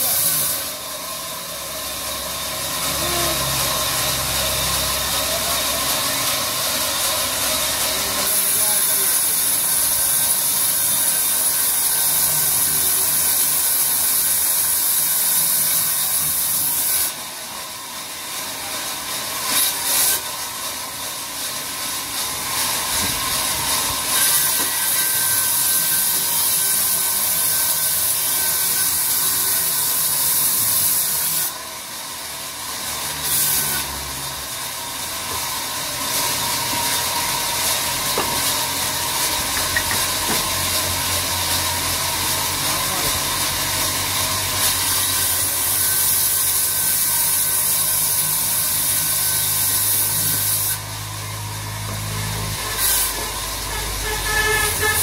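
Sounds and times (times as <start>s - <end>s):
band saw ripping through log: 35.3s - 55.0s.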